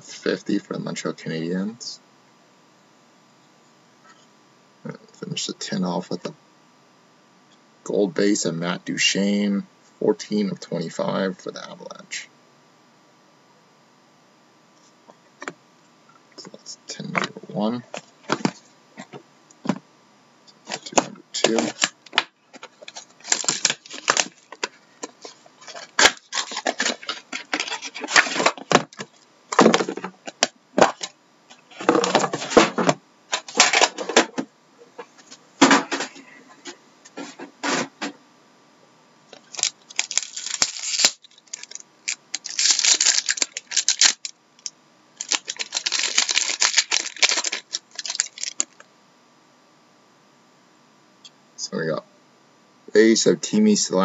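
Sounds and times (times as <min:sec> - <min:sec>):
plastic wrapper crinkling and tearing: 0:20.7 - 0:31.1, 0:39.4 - 0:48.8.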